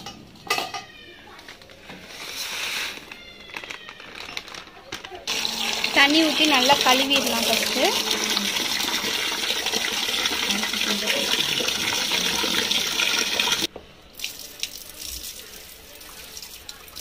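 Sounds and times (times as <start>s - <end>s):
tap water running into metal pot: 5.3s - 14.7s
water trickling: 5.3s - 17.0s.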